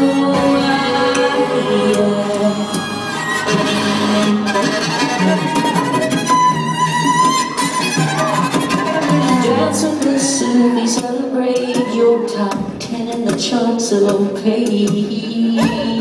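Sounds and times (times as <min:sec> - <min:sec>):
bowed violins playing: 0:00.0 - 0:12.4.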